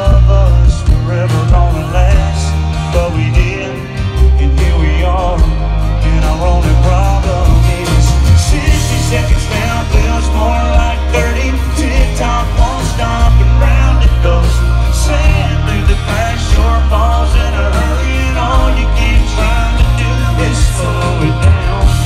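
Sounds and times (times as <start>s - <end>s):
live country band through loudspeakers: 0.0s - 22.0s.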